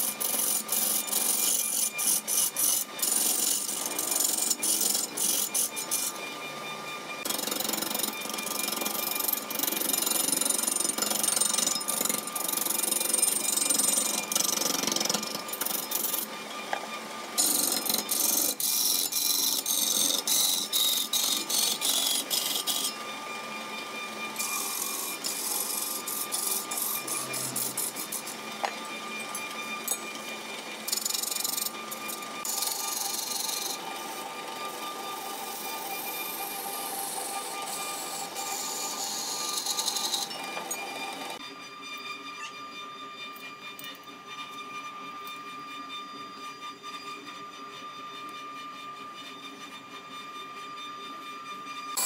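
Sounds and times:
lathe gouge cutting wood: 0.0 - 41.4
lathe motor whine: 0.0 - 52.0.

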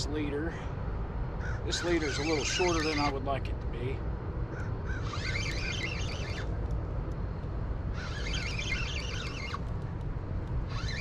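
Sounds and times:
high rapid chirping: 5.0 - 6.5, 8.0 - 9.6, 10.7 - 11.0.

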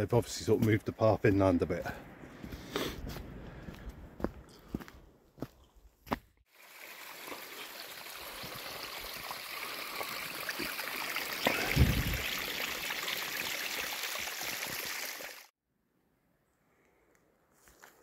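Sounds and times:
stream of running water: 6.5 - 15.5
low thump: 11.7 - 12.2.

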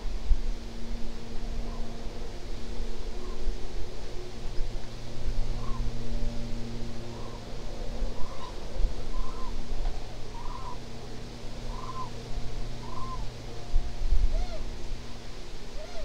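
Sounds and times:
steady low rumble: 0.0 - 16.0
cranes calling: 3.0 - 6.0, 7.0 - 13.6, 14.2 - 14.8, 15.7 - 16.0.

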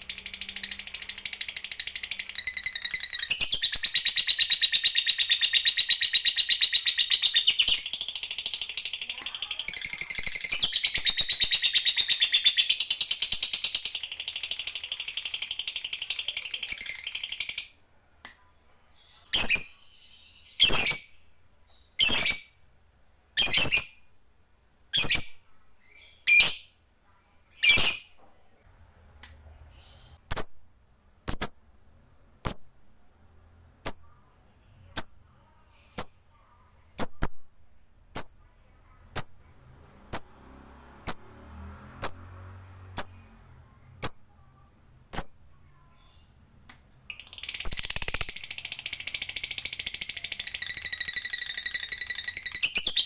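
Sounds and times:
bird chattering trill: 0.0 - 17.8, 47.1 - 53.0
sharp bird calls: 0.0 - 22.7.

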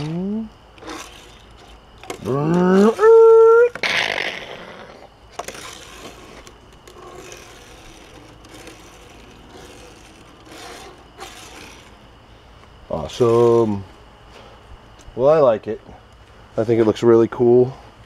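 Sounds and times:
toy car wheels rolling on wood: 0.8 - 12.0.

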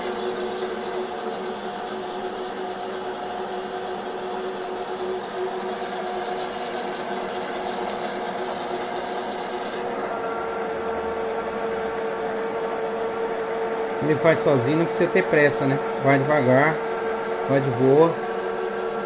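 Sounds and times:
lathe whine: 0.0 - 19.0
lathe hiss: 9.8 - 19.0.

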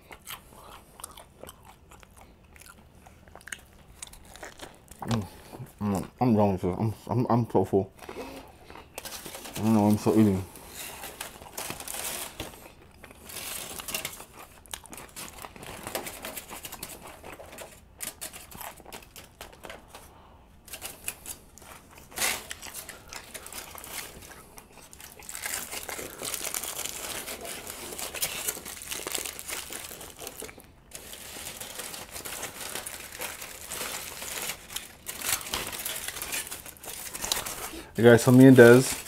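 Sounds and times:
foil crinkling: 9.0 - 20.0, 20.6 - 39.0.

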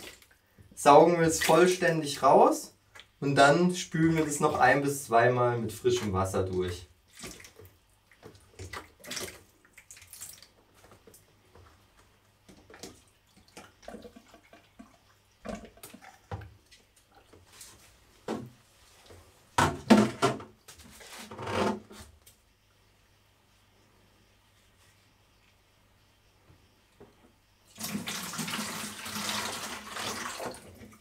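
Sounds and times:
water splashing and gurgling: 12.6 - 16.4.

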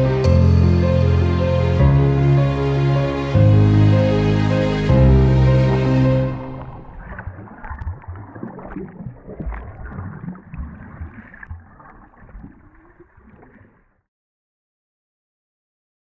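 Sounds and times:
water sloshing and gurgling: 4.6 - 14.1.

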